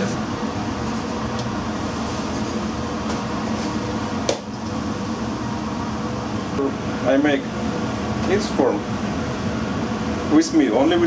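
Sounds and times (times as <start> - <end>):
ventilation and machinery drone: 0.0 - 11.0.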